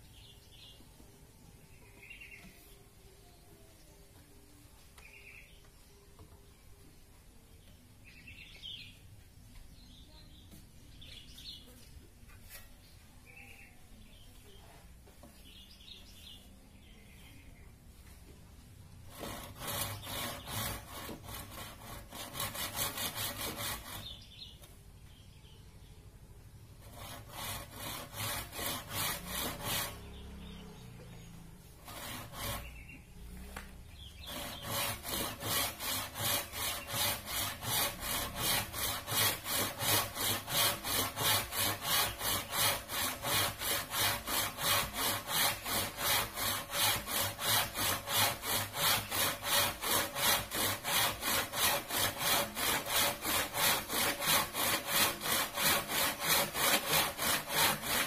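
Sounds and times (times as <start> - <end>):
hand saw cutting bamboo: 19.1 - 24.3, 26.8 - 30.4, 31.8 - 32.9, 34.2 - 58.0.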